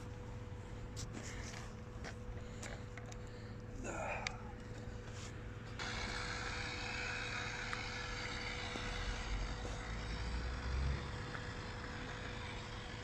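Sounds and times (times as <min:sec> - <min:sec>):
electric motor whine: 0:05.5 - 0:13.0.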